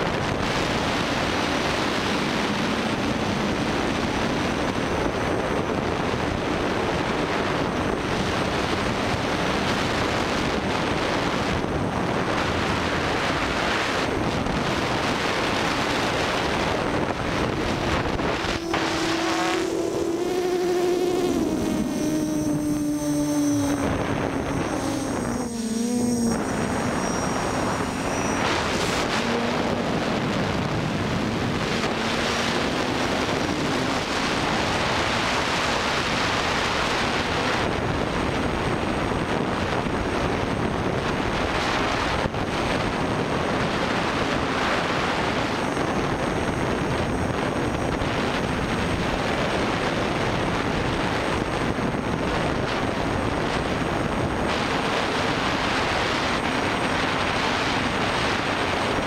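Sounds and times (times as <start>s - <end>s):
wind rushing: 14.0s - 35.2s
drone motors whining: 17.1s - 35.1s.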